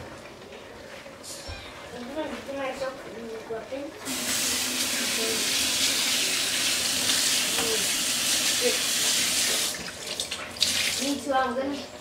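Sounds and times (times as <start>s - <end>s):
faucet water running into sink: 4.0s - 12.0s.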